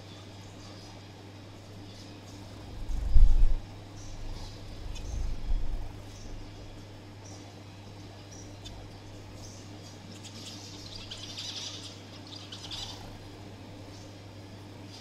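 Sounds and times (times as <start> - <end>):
steady low hum: 0.0 - 15.0
finches chirping: 1.8 - 15.0.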